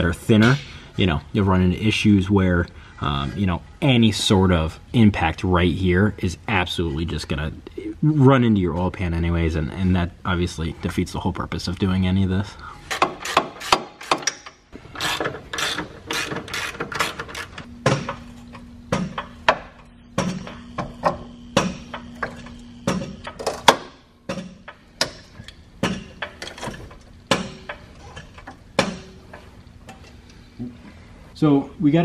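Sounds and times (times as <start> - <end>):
jack pumping with clunks: 12.6 - 31.0.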